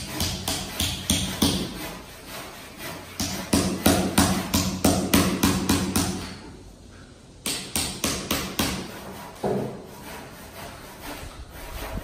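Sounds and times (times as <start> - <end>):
hammer striking chisel: 0.0 - 1.9, 3.2 - 6.4, 7.4 - 9.8.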